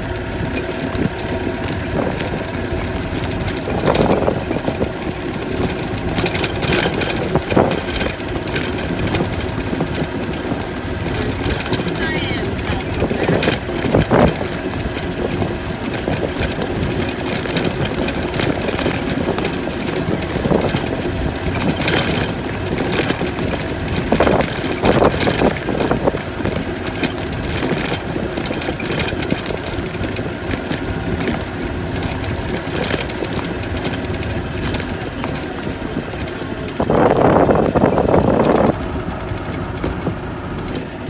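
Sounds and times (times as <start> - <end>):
golf cart running: 0.0 - 41.0.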